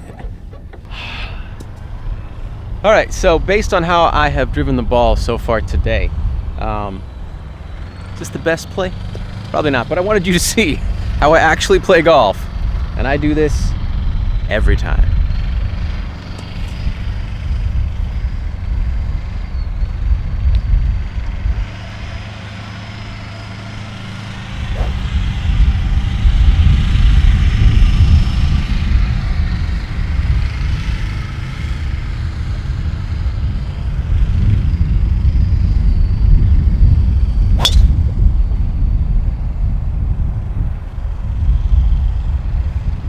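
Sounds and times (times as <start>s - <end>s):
wind buffeting microphone: 12.5s - 43.0s
golf driver striking ball: 24.6s - 25.4s, 37.6s - 38.2s.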